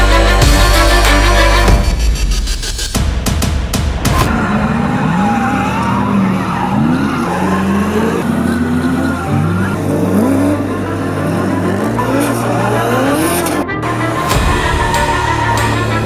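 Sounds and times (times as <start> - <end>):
tyres squealing: 4.3 - 13.6
car engine revving high: 4.3 - 16.0.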